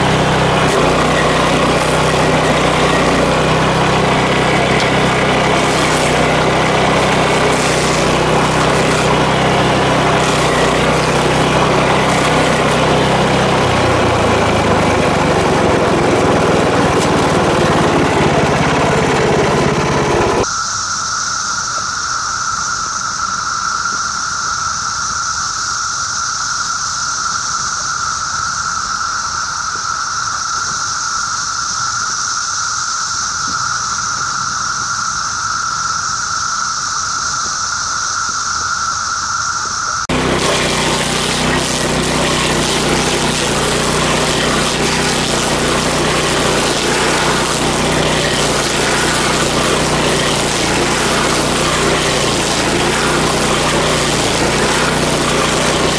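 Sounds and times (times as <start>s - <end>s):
stump grinder engine grinding: 0.0s - 20.5s, 40.1s - 55.9s
steady high whine: 0.0s - 55.9s.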